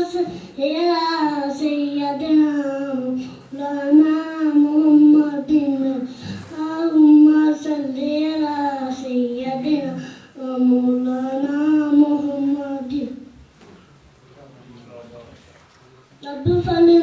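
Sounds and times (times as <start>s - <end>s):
boy singing unaccompanied: 0.0s - 13.3s, 16.2s - 17.0s.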